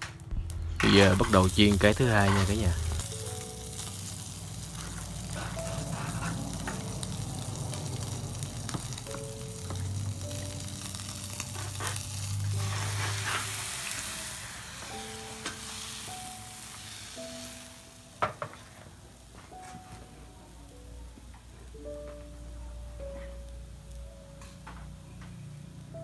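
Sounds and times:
music of held notes: 0.0s - 26.0s
meat sizzling in frying pan: 0.4s - 19.8s.

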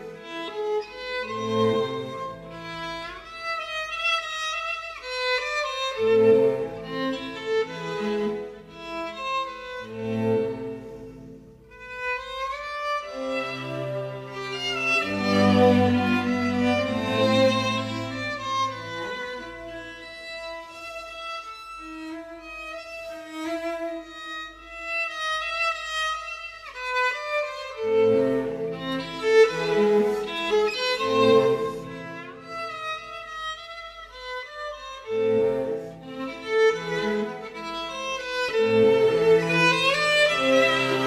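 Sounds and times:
instrumental melody: 5.8s - 20.4s
low accompanying notes: 13.2s - 20.2s.

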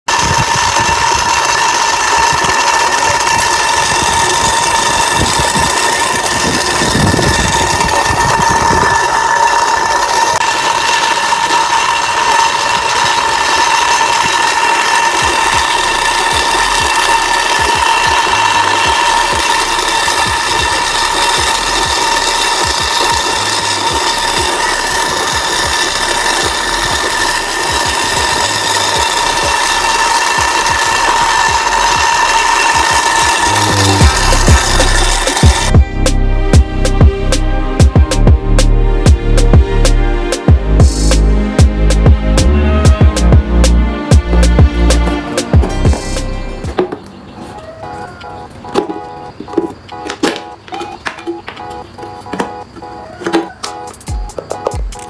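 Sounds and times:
toy wheels clicking and rattling: 0.0s - 35.8s, 47.6s - 55.0s
small toy motor whining: 0.2s - 35.8s.

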